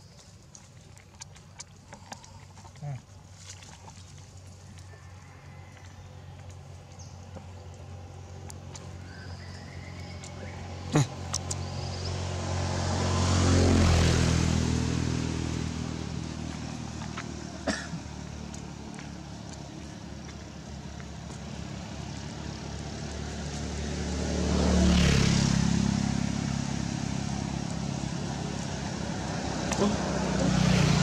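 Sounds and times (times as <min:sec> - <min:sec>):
vehicle engine running: 0:00.9 - 0:31.0.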